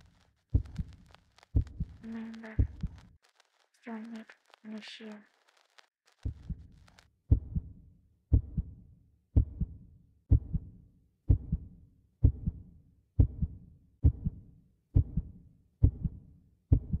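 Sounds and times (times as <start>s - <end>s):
heartbeat thumps: 0.0s - 3.1s, 6.2s - 8.8s, 9.4s - 12.6s, 13.2s - 14.4s, 15.0s - 17.0s.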